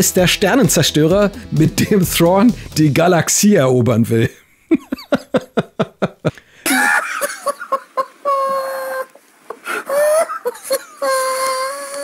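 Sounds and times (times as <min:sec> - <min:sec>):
man laughing hysterically: 0:04.6 - 0:09.1, 0:09.7 - 0:12.0.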